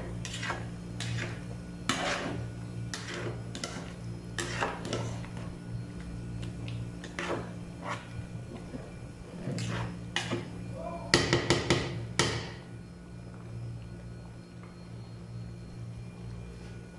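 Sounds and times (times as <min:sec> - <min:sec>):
steady low hum: 0:00.0 - 0:16.9
spoon scraping a metal pot: 0:00.1 - 0:05.5, 0:07.0 - 0:10.4.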